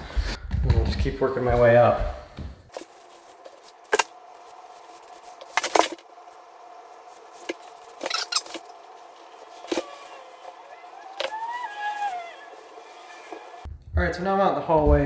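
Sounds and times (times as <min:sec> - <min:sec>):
faint steady hum: 0:02.1 - 0:13.8.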